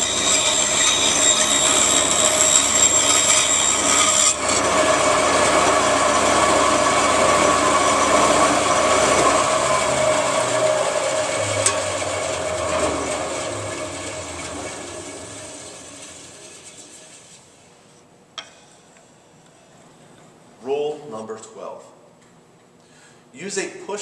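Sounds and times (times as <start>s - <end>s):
band saw running: 0.0s - 17.3s.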